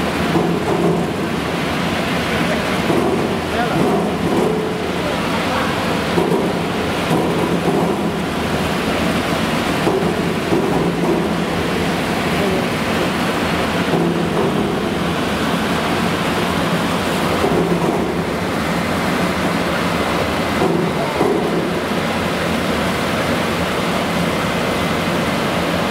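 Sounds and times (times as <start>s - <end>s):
water rushing: 0.0s - 25.9s.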